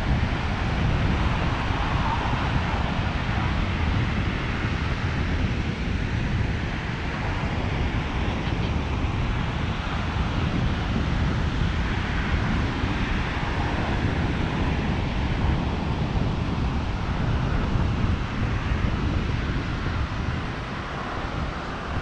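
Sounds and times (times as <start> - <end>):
ocean surf on sandy beach: 0.0 - 22.0
wind rumbling on microphone: 0.0 - 22.0.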